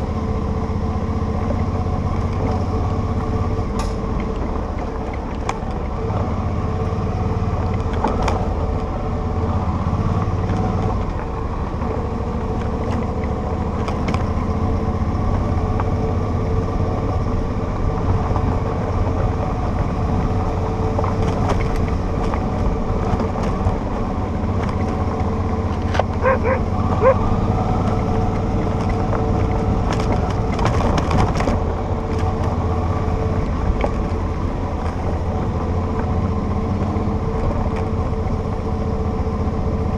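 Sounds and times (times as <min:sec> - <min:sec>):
motorcycle engine running: 0:11.2 - 0:39.9
tyre and wind noise: 0:17.2 - 0:38.4
dog barking: 0:26.2 - 0:27.2.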